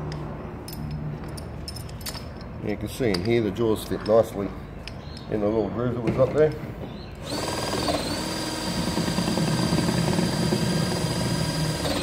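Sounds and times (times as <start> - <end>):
hydraulic pump whining: 7.2 - 12.0.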